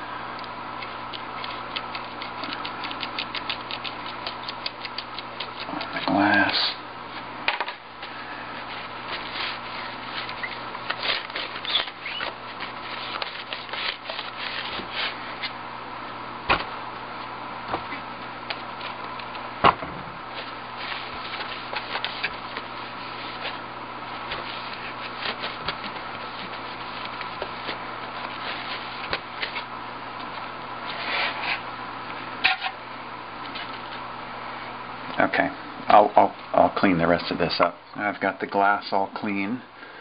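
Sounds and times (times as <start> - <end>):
faint steady hum: 0.0 - 40.0
paper towel rubbing on glass: 20.3 - 29.6.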